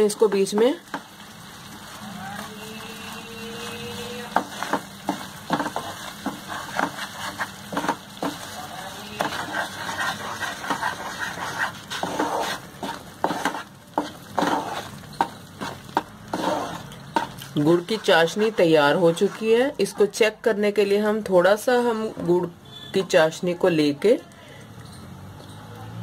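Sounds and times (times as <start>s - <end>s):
syrup bubbling and sizzling: 0.0s - 26.0s
wooden spatula scraping pan: 2.4s - 20.2s, 21.7s - 22.5s.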